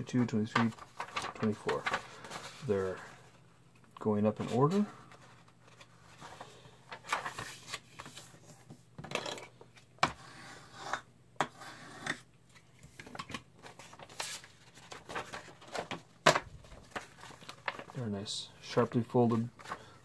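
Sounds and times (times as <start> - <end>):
paper rustling and scraping: 0.1 - 3.4, 4.4 - 8.8, 13.6 - 18.0.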